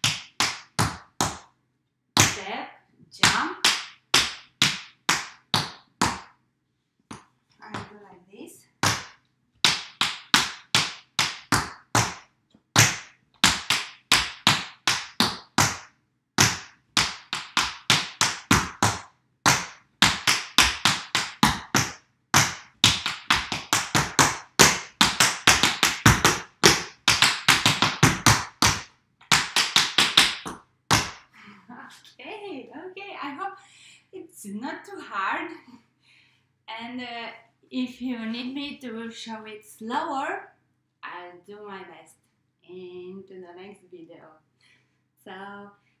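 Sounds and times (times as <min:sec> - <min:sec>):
tap shoes on wooden floor: 0:07.1 - 0:08.0, 0:16.4 - 0:31.2.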